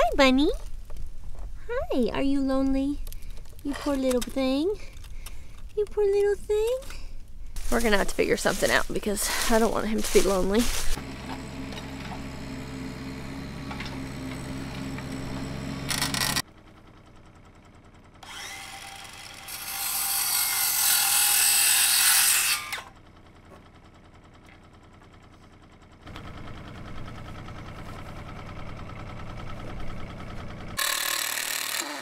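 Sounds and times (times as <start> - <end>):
circular saw cutting wood: 7.6 - 16.4, 18.2 - 22.9, 30.8 - 32.0.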